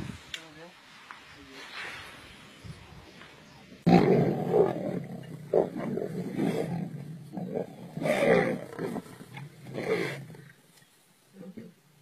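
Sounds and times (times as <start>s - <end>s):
lions growling: 3.9s - 10.6s.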